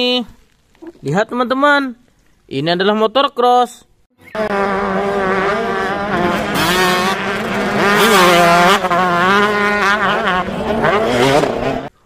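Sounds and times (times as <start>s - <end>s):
dirt bike engines revving: 4.2s - 12.0s.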